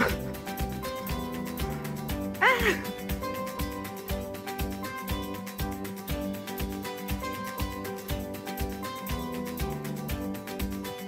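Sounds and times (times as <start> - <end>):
music with steady beat: 0.0 - 11.0.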